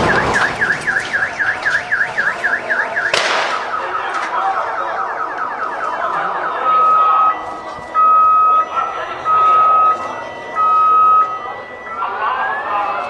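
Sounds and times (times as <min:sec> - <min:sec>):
car alarm warbling: 0:00.0 - 0:13.0
sharp bang: 0:03.1 - 0:03.8.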